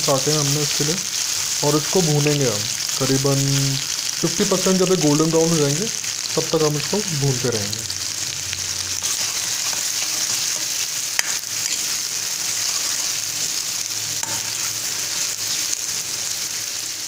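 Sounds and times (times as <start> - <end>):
onions sizzling in hot oil: 0.0 - 17.0
metal spoon clinking on pan: 14.2 - 14.6.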